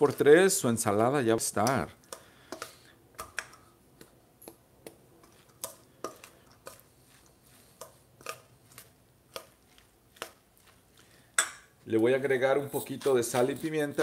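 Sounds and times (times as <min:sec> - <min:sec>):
spoon clinking in steel bowl: 0:11.4 - 0:11.7.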